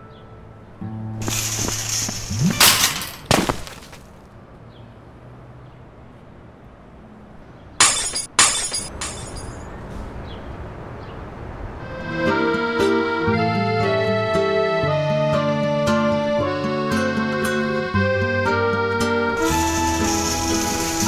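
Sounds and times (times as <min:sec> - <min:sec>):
glass shattering: 0:01.2 - 0:04.0, 0:07.8 - 0:09.7.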